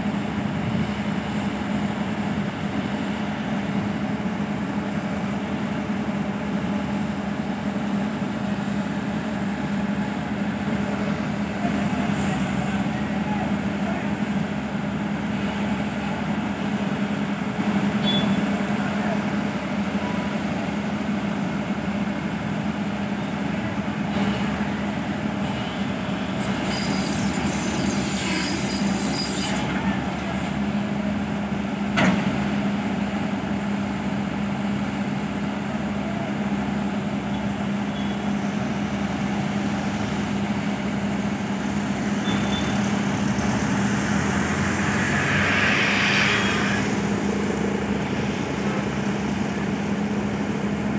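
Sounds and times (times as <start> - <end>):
diesel construction machinery running: 0.0 - 50.9
high hiss: 39.5 - 50.9.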